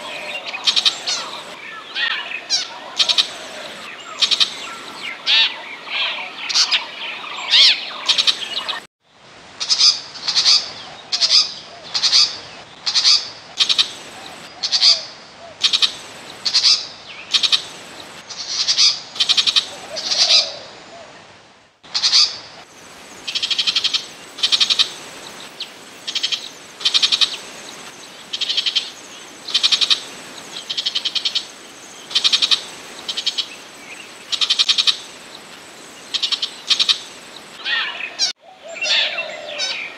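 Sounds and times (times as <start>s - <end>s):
bird harsh scratchy calls: 0.0s - 5.4s.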